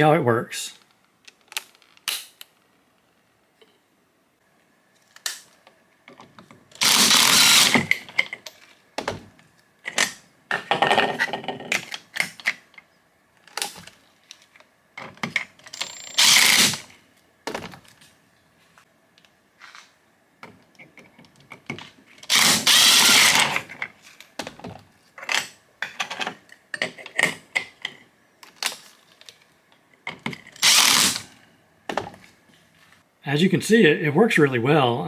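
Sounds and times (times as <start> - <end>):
impact driver running in bursts: 6.8 - 7.9
clicks and clatter of metal parts: 25.2 - 30.6.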